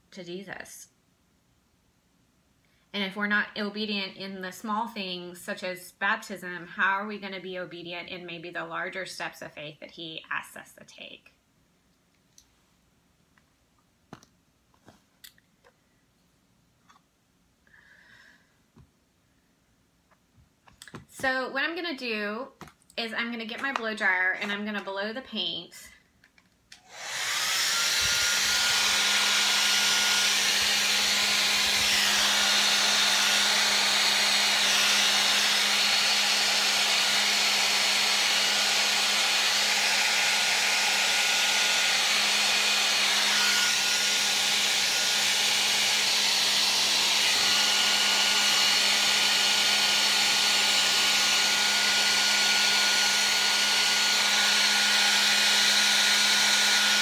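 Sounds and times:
hair dryer running: 0:23.2 - 0:25.0, 0:26.7 - 0:57.0.

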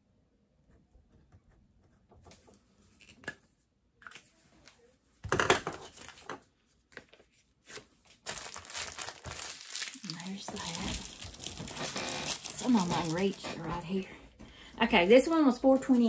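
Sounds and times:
plastic packaging crinkling: 0:07.7 - 0:14.0.

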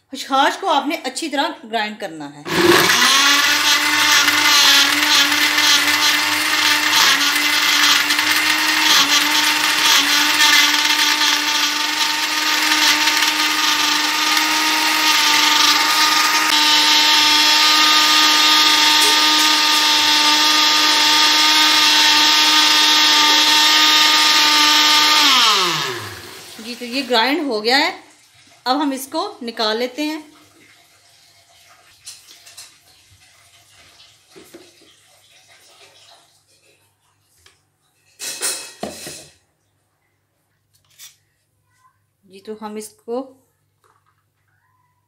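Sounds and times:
electric blender grinding ice: 0:02.5 - 0:27.4.

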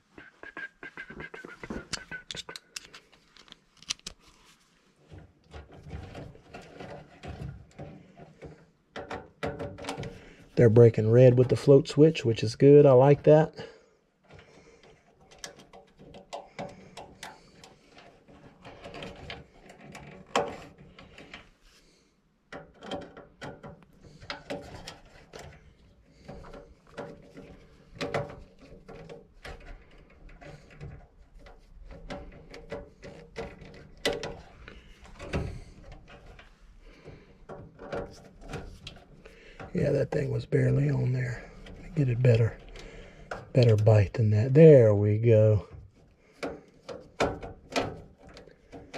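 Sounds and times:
screwdriver clicking and scraping: 0:01.8 - 0:04.2.

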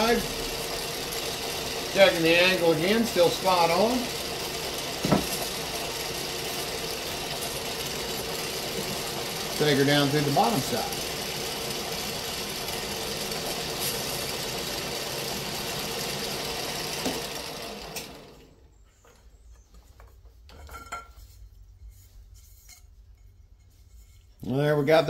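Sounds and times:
drill whirring cutting metal: 0:00.0 - 0:18.2.

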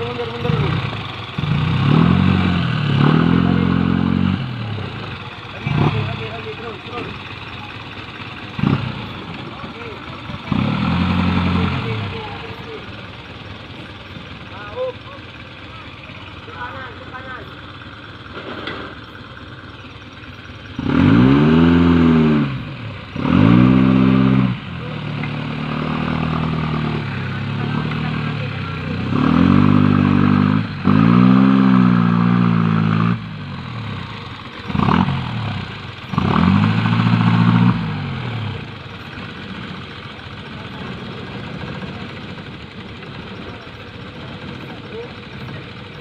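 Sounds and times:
engine revving hard: 0:00.0 - 0:07.1, 0:08.5 - 0:12.8, 0:20.7 - 0:38.8.

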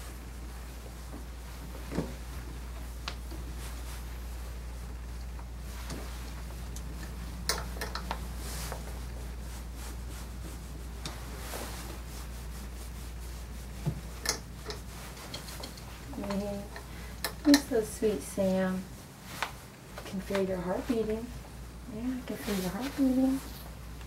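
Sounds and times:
steady low hum: 0:00.0 - 0:24.0
sharp clicks and knocks: 0:06.7 - 0:08.2.

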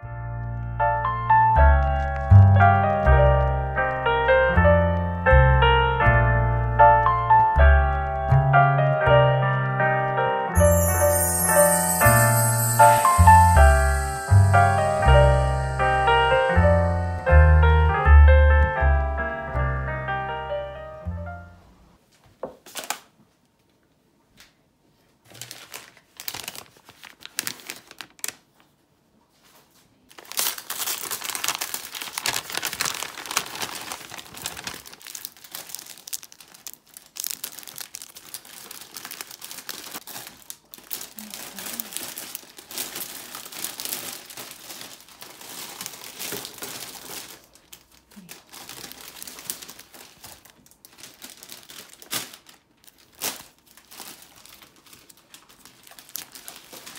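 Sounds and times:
plastic packaging crinkling: 0:01.8 - 0:03.6, 0:10.6 - 0:17.2, 0:22.6 - 0:23.1, 0:25.2 - 0:28.7, 0:30.0 - 0:56.9.

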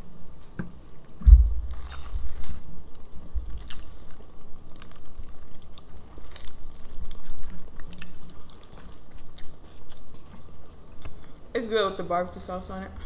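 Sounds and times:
people chewing food: 0:01.7 - 0:11.5.

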